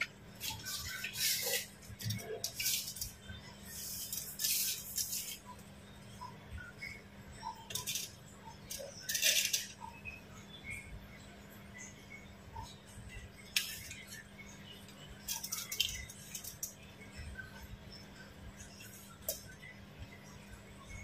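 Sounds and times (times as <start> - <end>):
low steady hum: 0.0 - 21.0.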